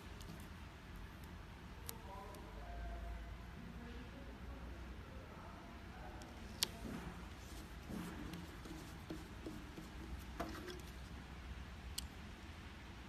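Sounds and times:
low steady hum: 0:00.0 - 0:13.0
plastic rubbing by hand: 0:06.6 - 0:11.2.

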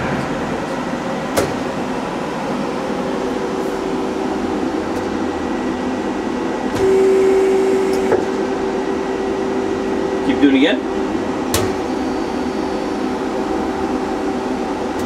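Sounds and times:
machine whine: 0:00.0 - 0:15.0
steady machine hum: 0:00.0 - 0:15.0.

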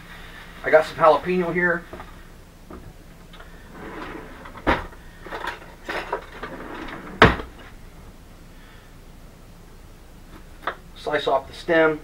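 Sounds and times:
rustling and utensil clatter: 0:03.7 - 0:07.8.

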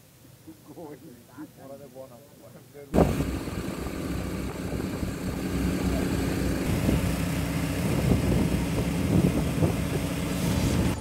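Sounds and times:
people talking: 0:00.5 - 0:03.1, 0:05.6 - 0:06.7
ship engine humming: 0:03.0 - 0:11.0.

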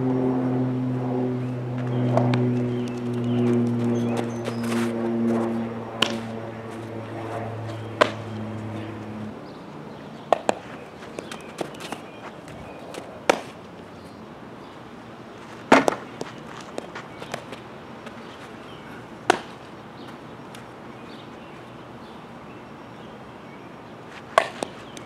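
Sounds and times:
steady low hum: 0:00.0 - 0:25.0
ball smacking into glove: 0:06.0 - 0:06.3, 0:08.0 - 0:08.3, 0:10.3 - 0:12.0, 0:12.9 - 0:13.6, 0:15.7 - 0:17.6, 0:19.2 - 0:19.6, 0:24.3 - 0:24.8
bat cracking softball: 0:06.0 - 0:06.9, 0:07.8 - 0:09.0, 0:10.3 - 0:12.1, 0:12.9 - 0:13.6, 0:15.6 - 0:18.2, 0:19.2 - 0:19.7, 0:24.2 - 0:25.0.

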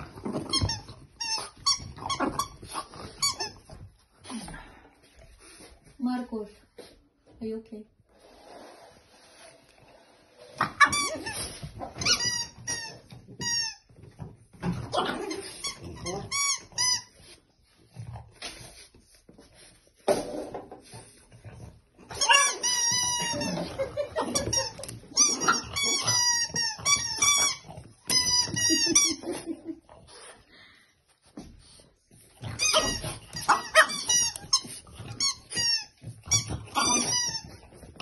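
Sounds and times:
rubber squeaky toy squeaking: 0:00.4 - 0:03.6, 0:12.0 - 0:13.9, 0:22.1 - 0:29.2, 0:32.5 - 0:37.7.

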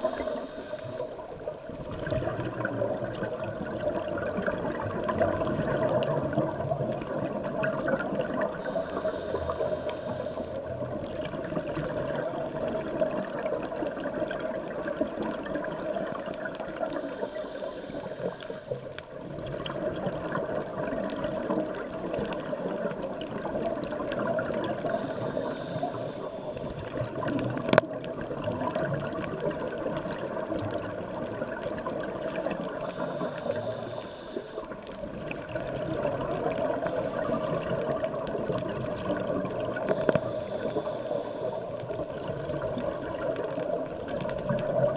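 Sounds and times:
faint crackling: 0:00.0 - 0:44.9
muffled underwater rush: 0:00.0 - 0:44.9.

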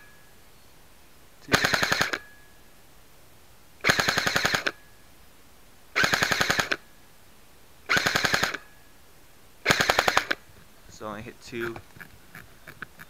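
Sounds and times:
airsoft gun firing bursts: 0:01.5 - 0:02.3, 0:03.8 - 0:04.8, 0:06.0 - 0:06.8, 0:07.9 - 0:08.7, 0:09.6 - 0:10.4.

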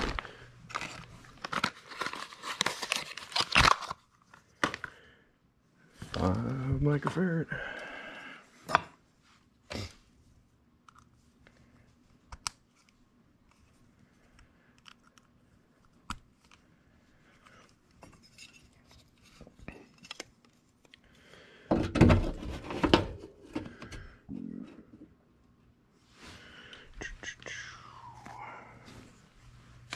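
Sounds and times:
knocking and rattling in metal cabinet: 0:21.7 - 0:23.2.

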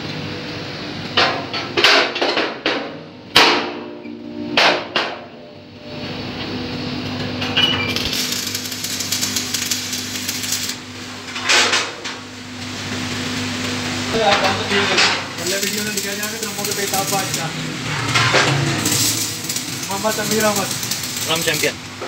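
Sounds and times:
steady hum: 0:00.0 - 0:22.0
hammer striking steel drum: 0:03.3 - 0:05.5.

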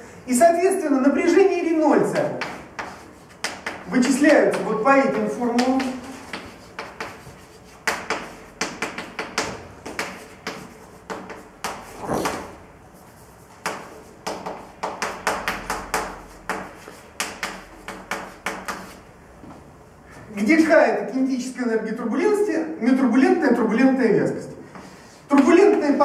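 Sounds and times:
chalk tapping and scraping: 0:02.0 - 0:19.1.

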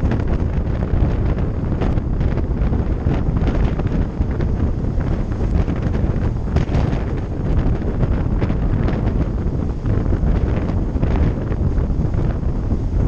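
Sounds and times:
train running rumble: 0:00.0 - 0:13.0
wind buffeting microphone: 0:00.0 - 0:13.0.

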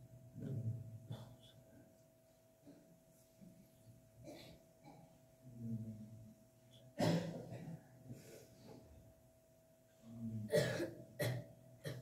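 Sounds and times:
faint steady hum: 0:00.0 - 0:12.0
people coughing: 0:04.2 - 0:05.2, 0:07.0 - 0:07.9, 0:10.5 - 0:12.0.

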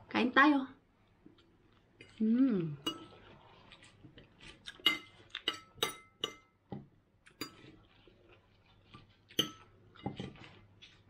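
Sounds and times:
cutlery clinking on glass and plate: 0:04.8 - 0:06.5.

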